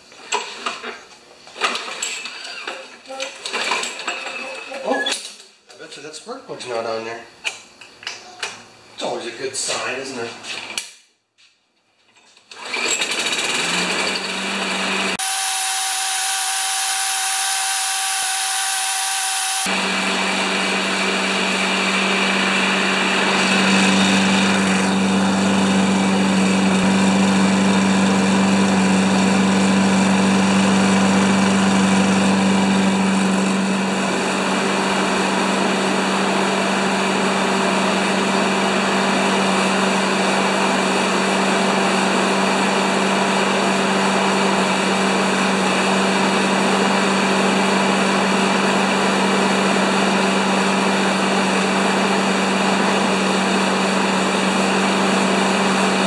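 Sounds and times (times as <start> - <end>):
lawn mower engine running: 12.5 - 56.0.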